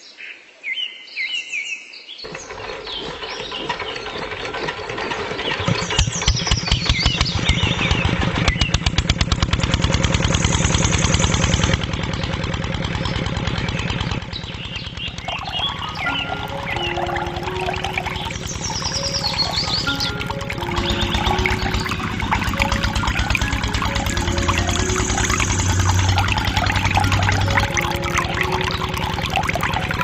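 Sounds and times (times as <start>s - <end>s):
engine starting and chugging: 2.3s - 30.0s
birds chirping: 13.9s - 30.0s.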